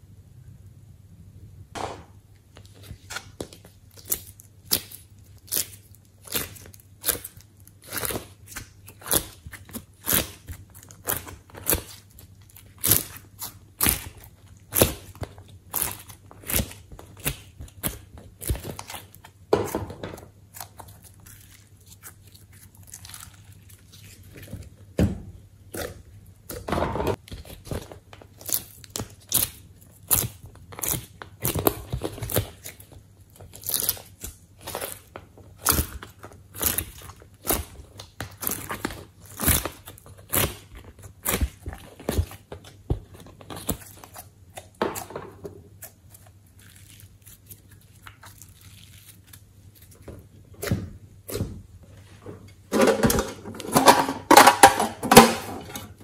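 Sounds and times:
crunching squeezes: 20.4 - 24.7, 27.2 - 45.1, 45.7 - 51.4.

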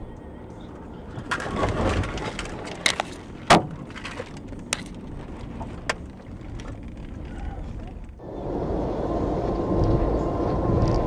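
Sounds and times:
rush of noise: 8.2 - 11.0.

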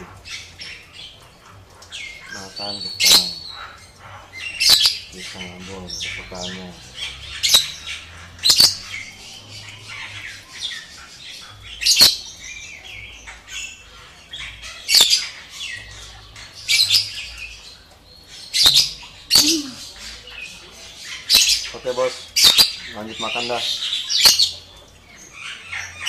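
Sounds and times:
parrot sharp calls: 18.6 - 20.4.

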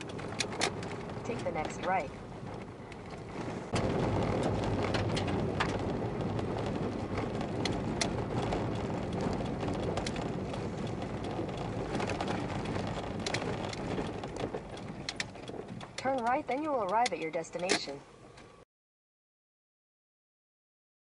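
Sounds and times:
tyres rumbling on gravel: 0.0 - 17.1
small stones ticking: 3.8 - 17.2.

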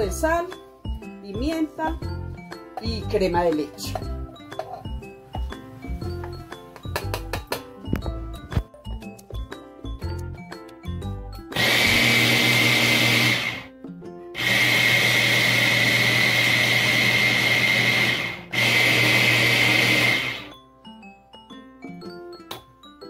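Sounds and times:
hand blender motor: 11.5 - 13.7, 14.4 - 20.5.

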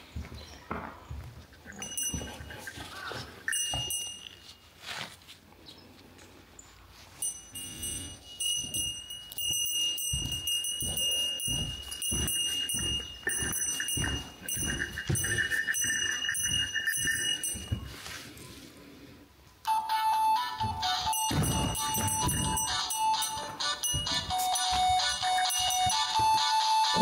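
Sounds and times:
heavy footsteps on debris: 7.4 - 18.4, 20.6 - 26.5
steady high tone: 19.6 - 27.0
electronic beeping jingle: 19.7 - 27.0.

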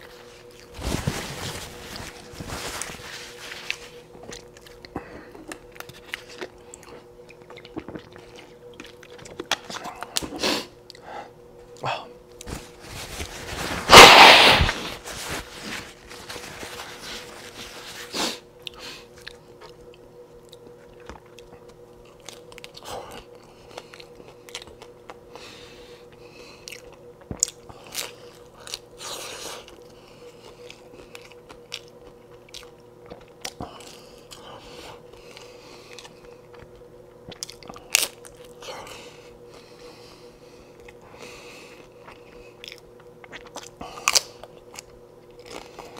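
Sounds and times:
paper napkin rustling: 0.0 - 4.1, 12.5 - 18.4
crunchy bites and chewing: 3.3 - 11.0, 13.9 - 14.9, 18.6 - 25.2, 26.1 - 39.6, 40.7 - 45.9.

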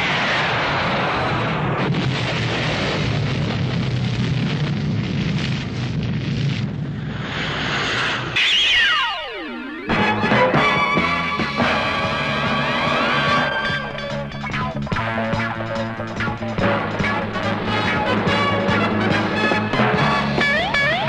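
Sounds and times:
explosion rumbling roar: 0.0 - 8.9
falling whistle: 8.4 - 11.1.

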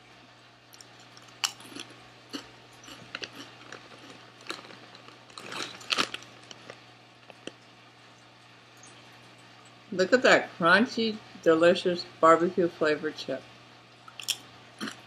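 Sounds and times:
chewing crunchy chips: 0.7 - 7.7, 14.0 - 15.0
foil bag crinkling: 2.9 - 7.6.

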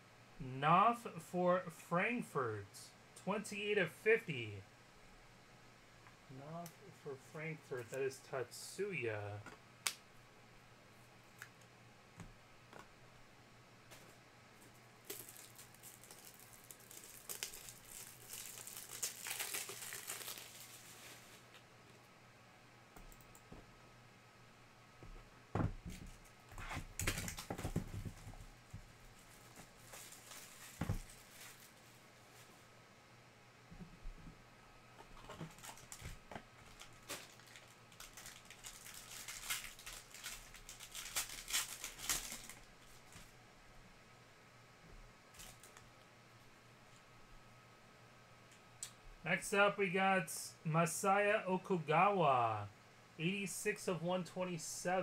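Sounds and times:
plastic wrapping tearing and crinkling: 15.0 - 21.6, 26.8 - 28.0, 29.2 - 32.0, 35.2 - 43.3, 45.3 - 45.8.

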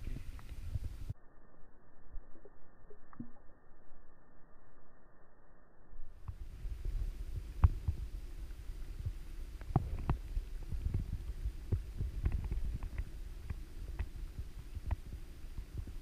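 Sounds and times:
muffled underwater stream rumble: 0.0 - 4.8, 6.0 - 16.0
underwater clicks and knocks: 9.0 - 14.2.

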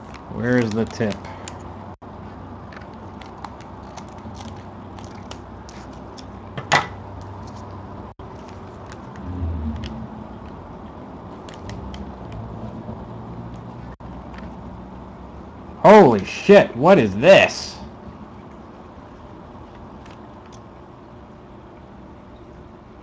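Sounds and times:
scissors snipping paper: 0.0 - 1.6, 2.7 - 6.3
wrapper rustling and crinkling: 0.0 - 1.6.

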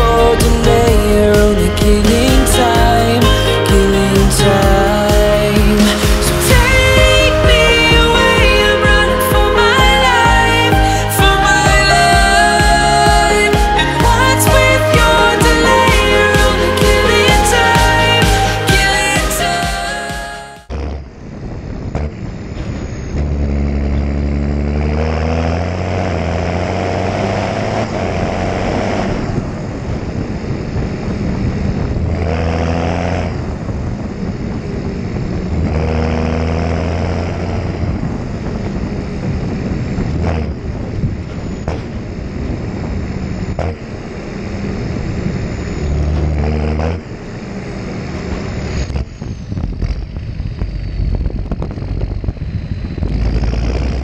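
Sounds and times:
tractor engine running: 0.0 - 54.0
wind rush on microphone: 5.5 - 11.8, 26.9 - 54.0.

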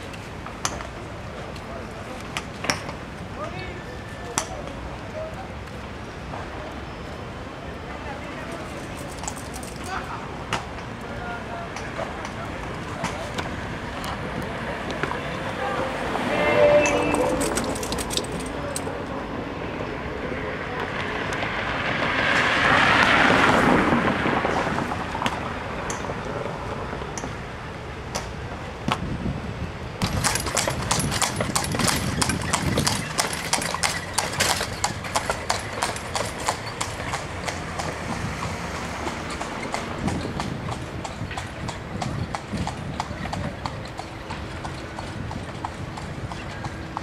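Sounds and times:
street noise: 0.0 - 47.0
horse hooves clip-clopping on asphalt: 8.6 - 10.0, 17.0 - 18.9, 30.0 - 47.0.

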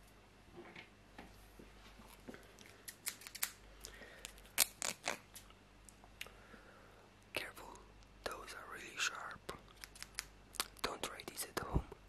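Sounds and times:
scissors snipping: 2.9 - 3.6, 9.7 - 10.7.

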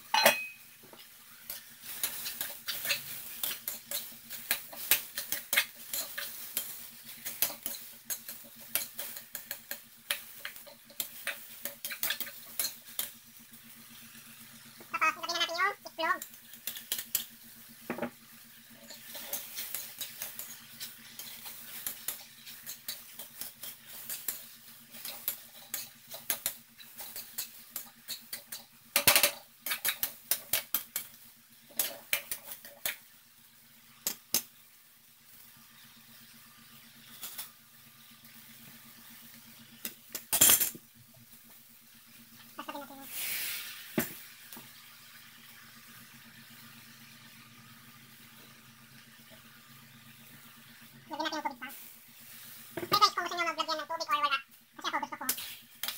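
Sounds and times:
metal spoon scraping a wok: 1.5 - 13.1, 18.8 - 28.6.

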